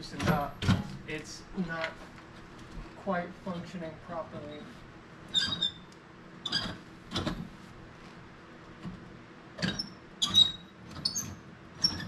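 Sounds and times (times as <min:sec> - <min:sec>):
rusty damper squeaking: 0:05.3 - 0:07.5, 0:09.6 - 0:12.0.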